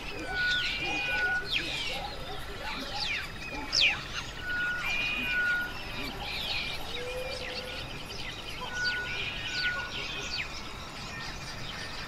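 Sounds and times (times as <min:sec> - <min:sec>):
short whistled bird notes: 0:00.0 - 0:02.0
birds chirping: 0:00.0 - 0:12.0.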